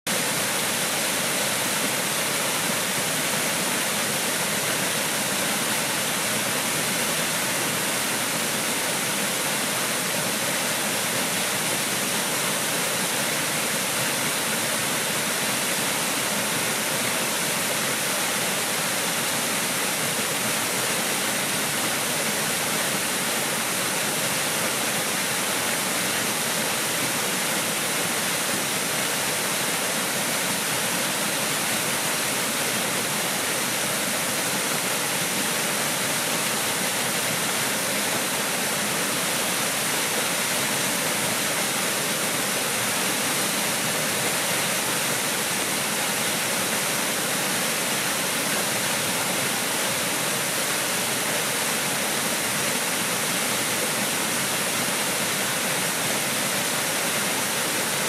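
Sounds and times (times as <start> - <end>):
waterfall rushing hiss: 0.1 - 58.0.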